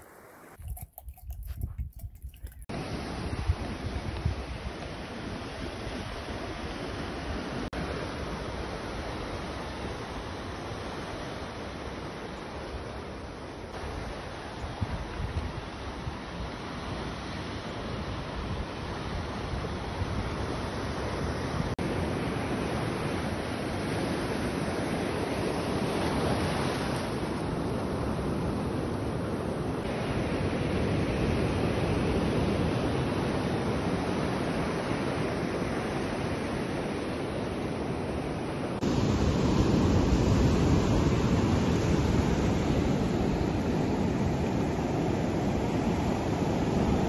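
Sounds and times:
wind on microphone: 0.0s - 7.6s, 14.6s - 16.5s
ocean surf washing ashore: 2.7s - 47.0s.

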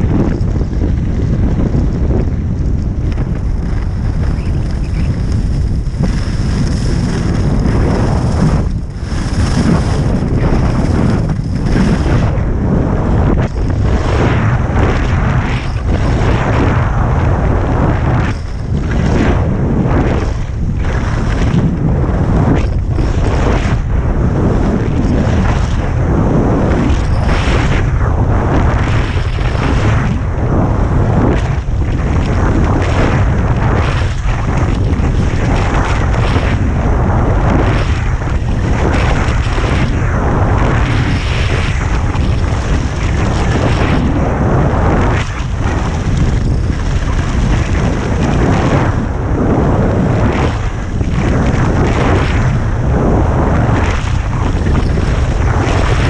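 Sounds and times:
wind buffeting microphone: 0.0s - 56.0s
skis scraping on snow: 0.2s - 14.6s, 20.9s - 27.8s.

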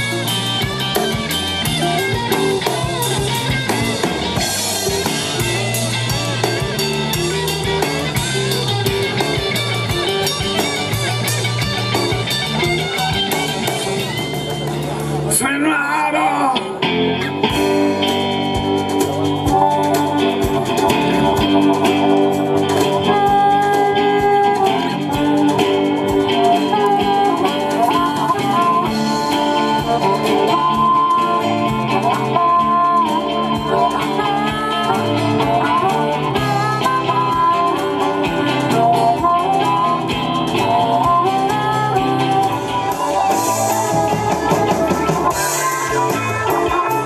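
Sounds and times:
blues-rock band playing: 0.0s - 47.0s
harmonica bending notes: 18.4s - 47.0s.

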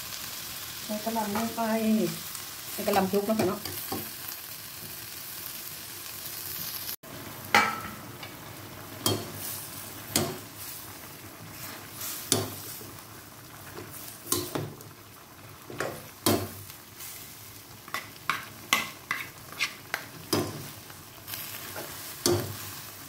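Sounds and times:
food sizzling in a wok: 0.0s - 23.0s
utensils knocking against pan: 7.5s - 8.0s, 9.0s - 9.4s, 10.1s - 10.4s, 21.8s - 22.6s.

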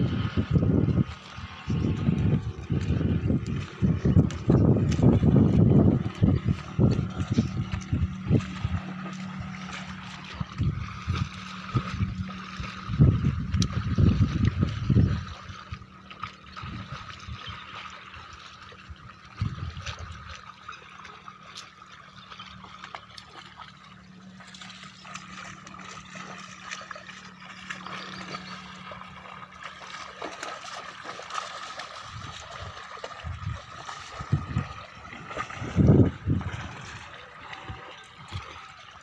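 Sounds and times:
water trickling and gurgling: 0.0s - 39.0s.

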